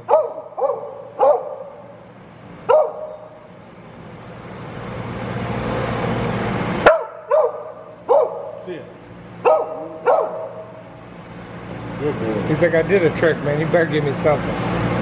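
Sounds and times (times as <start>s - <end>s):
dog barking: 0.0s - 1.9s, 2.7s - 3.2s, 6.8s - 8.6s, 9.4s - 10.8s.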